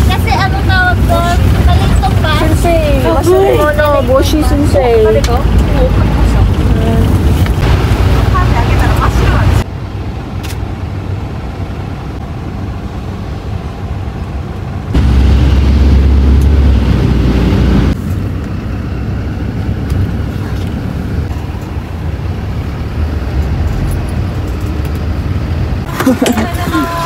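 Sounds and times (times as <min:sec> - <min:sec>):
loud bassy rumble: 0:00.0 - 0:09.7, 0:14.9 - 0:25.9
minibus engine and road rumble: 0:00.0 - 0:27.0.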